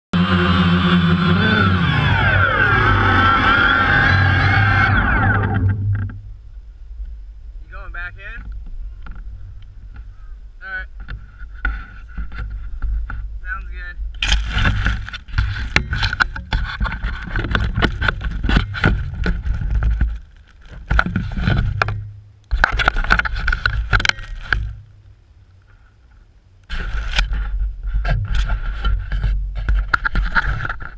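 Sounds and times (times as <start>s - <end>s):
low rumble: 0.1s - 30.5s
drone propellers whining: 0.2s - 7.5s.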